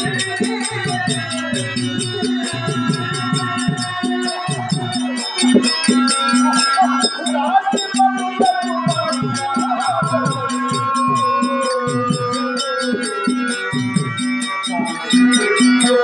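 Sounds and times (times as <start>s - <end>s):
hand drums playing fast beat: 0.0s - 16.0s
small bells jingling: 0.0s - 16.0s
wavering melody line: 0.0s - 16.0s.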